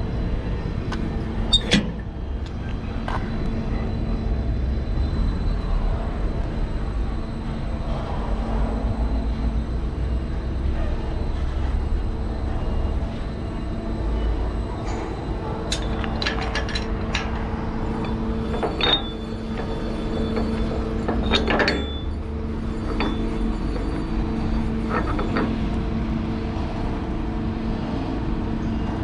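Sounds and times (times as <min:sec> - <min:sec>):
twist-lock clanking: 0:15.7 - 0:22.2, 0:22.8 - 0:24.1.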